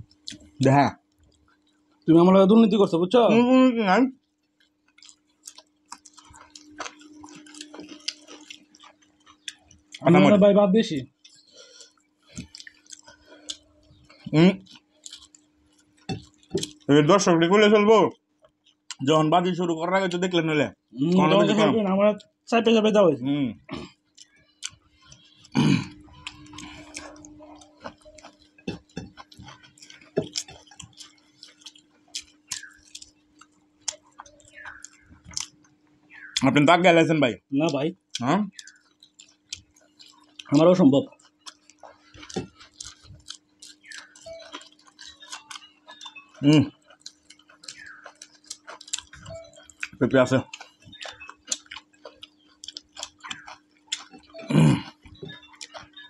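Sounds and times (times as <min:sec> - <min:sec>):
faint steady hum: 0:00.0 - 0:56.0
people chewing: 0:00.0 - 0:56.0
fingers clicking on plates: 0:26.2 - 0:36.5
grunt-like vocal sound: 0:54.5 - 0:54.8.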